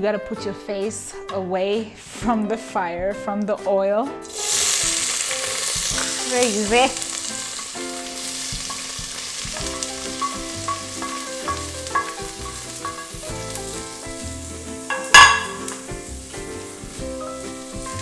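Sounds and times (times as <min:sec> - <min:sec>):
onion sizzling in hot oil: 0:04.2 - 0:18.0.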